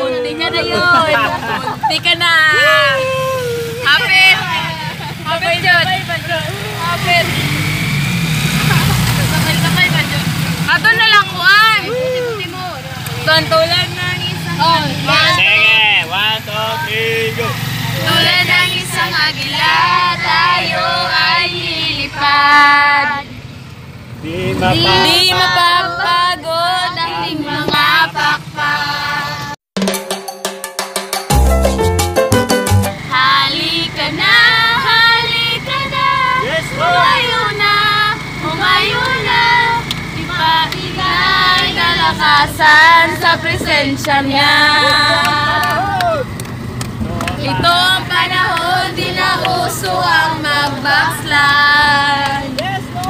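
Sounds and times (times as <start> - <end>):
women singing together: 0.0 - 2.9, 3.8 - 7.4, 18.0 - 23.4, 24.5 - 29.6, 33.0 - 46.4, 47.3 - 53.0
vehicle engine hum: 0.0 - 29.6, 31.4 - 53.0.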